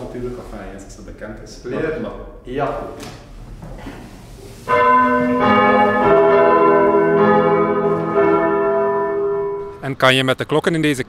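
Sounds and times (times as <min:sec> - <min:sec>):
church bells ringing: 0:04.6 - 0:10.4.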